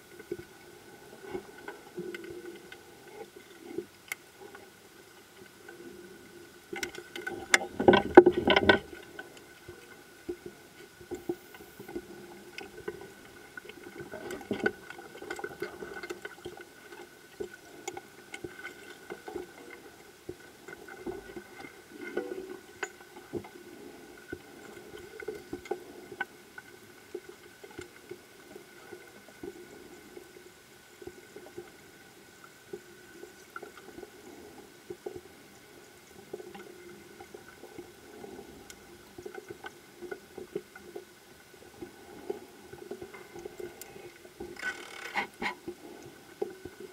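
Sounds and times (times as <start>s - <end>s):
underwater hum of held tones: 0.0s - 46.9s
clicks and crackles: 6.6s - 23.6s, 42.8s - 46.9s.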